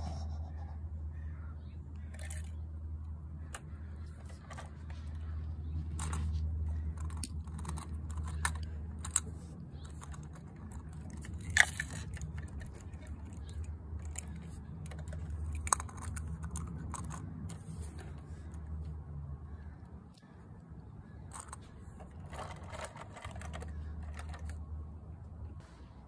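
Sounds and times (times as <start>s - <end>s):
steady low hum: 0.0s - 26.0s
toy truck plastic clicks: 1.9s - 2.6s, 5.9s - 18.8s, 21.2s - 24.8s.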